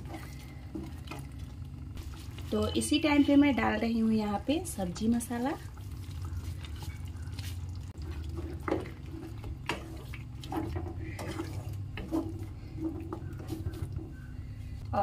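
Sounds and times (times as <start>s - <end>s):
wet sloppy gravy sounds: 0.0s - 3.6s, 4.7s - 14.4s
steady low hum: 0.0s - 15.0s
spatula scraping pan: 5.4s - 14.3s.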